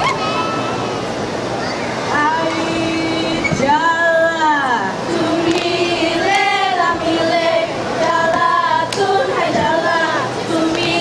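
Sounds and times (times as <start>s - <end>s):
girls singing together: 2.2s - 11.0s.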